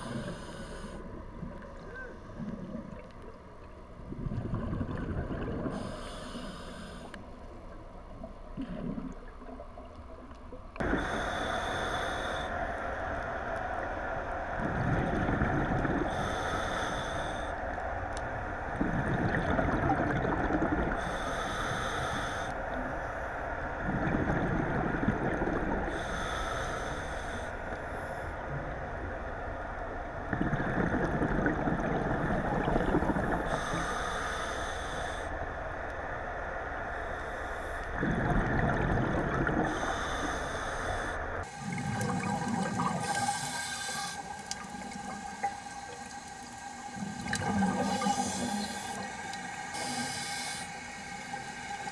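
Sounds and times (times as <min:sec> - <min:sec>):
diver inhaling through regulator: 0:00.0 - 0:01.1, 0:05.7 - 0:07.2, 0:10.8 - 0:12.8, 0:16.0 - 0:17.6, 0:21.0 - 0:22.6, 0:25.9 - 0:28.3, 0:32.3 - 0:35.3, 0:39.6 - 0:51.9
exhaled bubbles rumbling: 0:01.2 - 0:05.9, 0:08.0 - 0:11.0, 0:13.4 - 0:16.3, 0:18.6 - 0:21.0, 0:23.8 - 0:26.0, 0:28.6 - 0:33.7, 0:38.0 - 0:39.8, 0:41.4 - 0:50.0.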